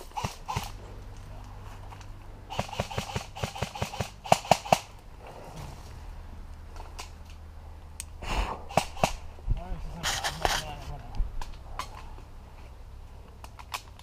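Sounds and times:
airsoft guns firing: 0.0 - 0.8, 2.5 - 4.9, 8.7 - 9.2.

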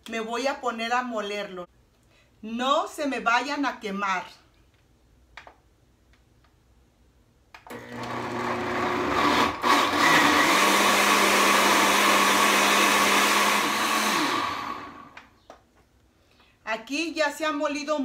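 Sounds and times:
blender motor running: 7.7 - 15.2.

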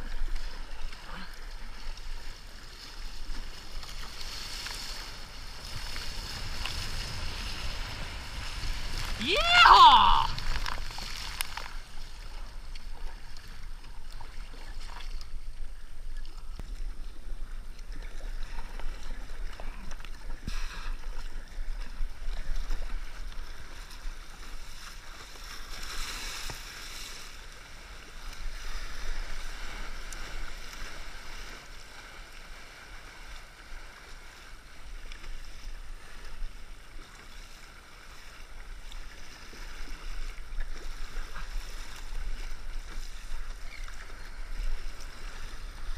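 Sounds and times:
kayak paddle strokes: 0.0 - 45.9
water rushing along hull: 0.0 - 45.9
wave splashing over deck: 5.2 - 11.7.

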